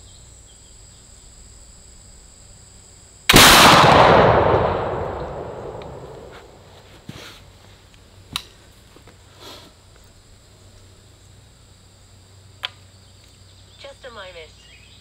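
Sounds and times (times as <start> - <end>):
gunshot echo: 3.3 - 6.7
soft rustle: 6.2 - 8.0.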